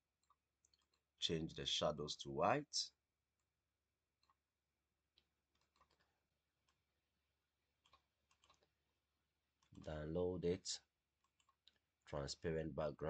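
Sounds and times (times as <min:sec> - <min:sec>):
computer mouse clicks: 0:05.2 - 0:06.8, 0:07.8 - 0:08.7, 0:11.2 - 0:11.8.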